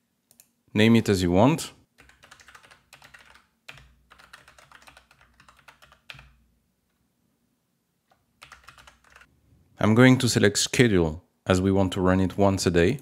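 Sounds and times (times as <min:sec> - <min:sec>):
typing on keyboard: 0:02.0 - 0:06.4, 0:08.1 - 0:09.3.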